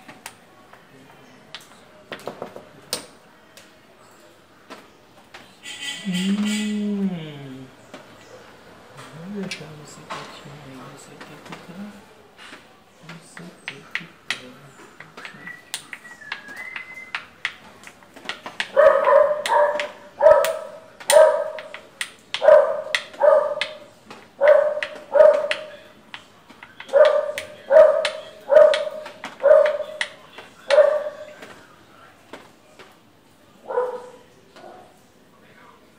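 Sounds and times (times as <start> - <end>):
dog barking: 18.7 - 21.7, 22.4 - 25.7, 26.9 - 30.0, 30.7 - 31.3, 33.6 - 35.0.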